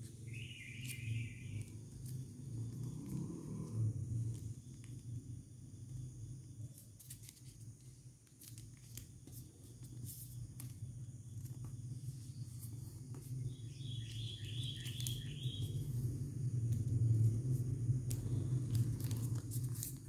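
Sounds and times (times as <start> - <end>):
steady low hum: 0.0 - 20.0
paper being folded and creased: 6.7 - 10.8, 11.4 - 16.1, 16.7 - 20.0.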